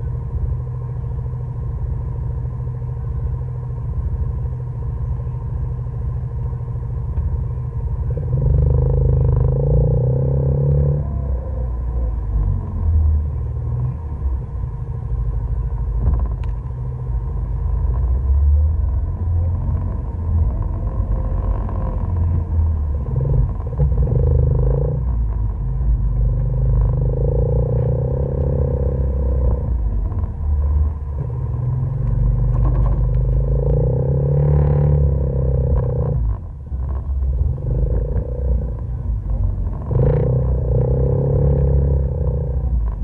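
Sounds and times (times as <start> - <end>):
atv engine revving: 8.2 - 11.2.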